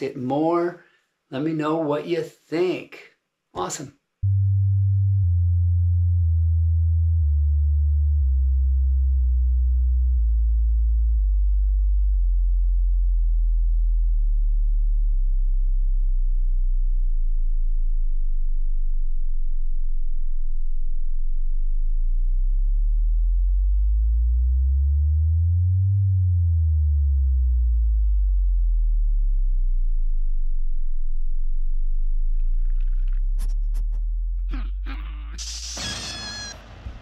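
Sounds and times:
low tone gliding in pitch: 0:04.2 - 0:19.1
deep electronic bass tone: 0:04.2 - 0:35.5.

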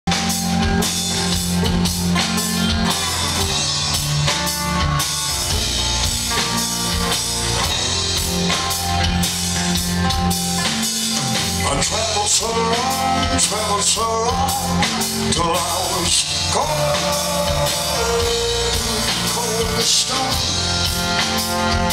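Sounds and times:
drum kit beat: 0:00.1 - 0:21.9
electric bass: 0:00.1 - 0:21.9.

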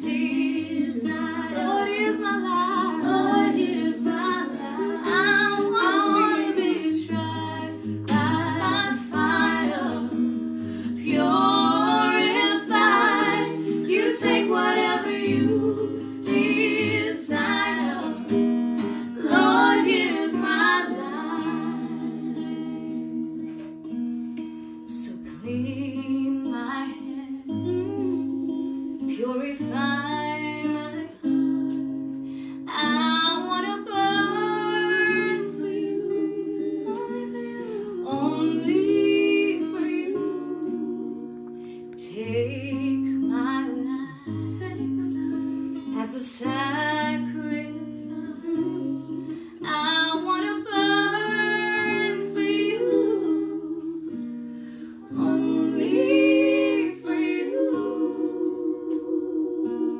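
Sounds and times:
woman leading singing: 0:00.0 - 0:10.3, 0:10.9 - 0:23.4, 0:32.7 - 0:41.4, 0:42.0 - 0:45.4, 0:46.0 - 0:54.3, 0:55.0 - 0:59.9
group singing worship song: 0:00.0 - 0:23.8, 0:33.8 - 0:42.2, 0:50.4 - 0:59.9
acoustic guitar chords: 0:00.0 - 0:59.9.

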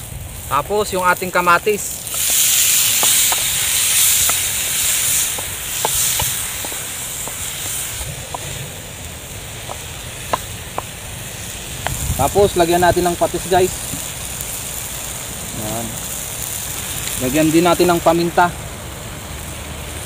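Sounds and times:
tomatoes sizzling in hot oil: 0:00.0 - 0:20.0
sharp oil pops: 0:02.0 - 0:08.8, 0:09.6 - 0:11.1.

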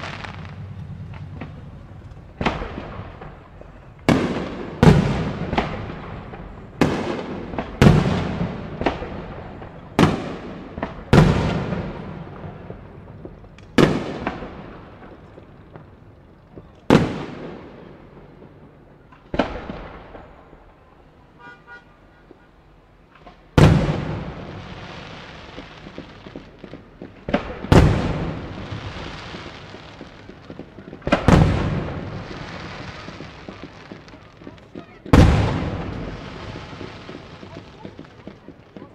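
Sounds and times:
fireworks hissing crackle: 0:00.0 - 0:10.5, 0:23.1 - 0:38.9
fireworks bangs with echoing rumble: 0:00.0 - 0:21.2, 0:22.2 - 0:38.9.

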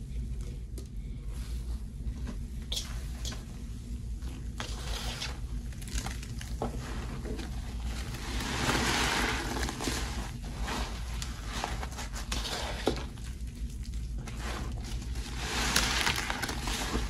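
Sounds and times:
wet squishing and sloshing: 0:03.9 - 0:17.0.

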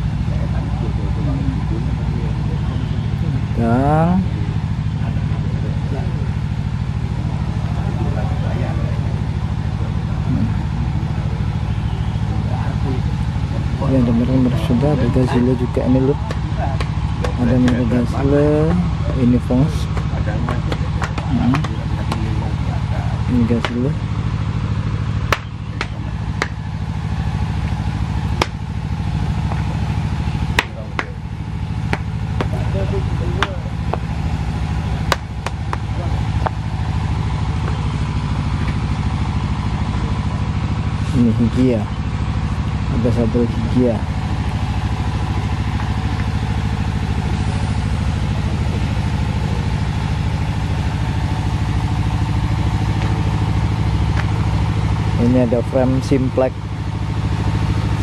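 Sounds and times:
low pulsing engine rumble: 0:00.0 - 0:58.0
sharp knocks: 0:25.3 - 0:26.6, 0:30.5 - 0:31.2, 0:31.9 - 0:32.6, 0:35.1 - 0:36.6.

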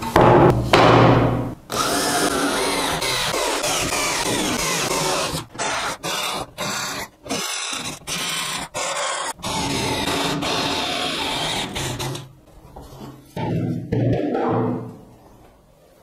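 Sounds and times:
drill grinding through sheet metal: 0:01.7 - 0:12.3.

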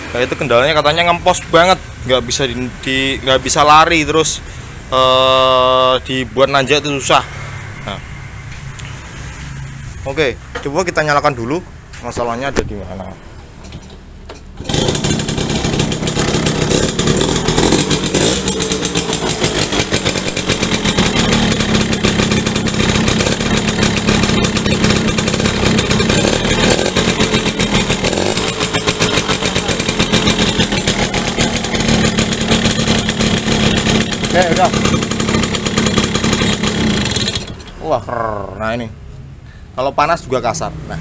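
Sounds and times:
two-stroke engine running: 0:14.6 - 0:37.7.

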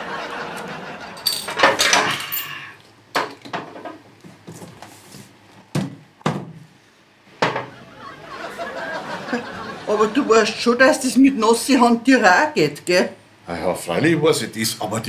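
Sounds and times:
glass bottles clinking on table: 0:01.2 - 0:03.9.

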